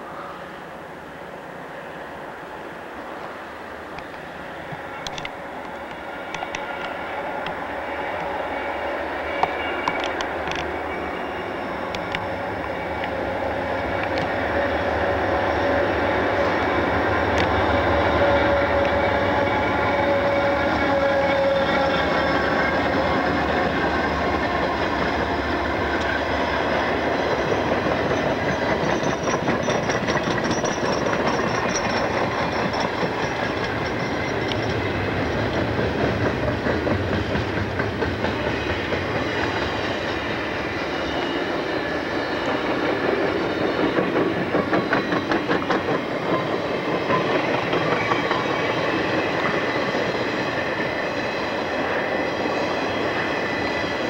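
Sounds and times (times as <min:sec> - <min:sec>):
steel wheels rumbling on rail: 0:00.0 - 0:54.0
wheels clacking over rail joints: 0:15.6 - 0:40.5, 0:42.4 - 0:51.0.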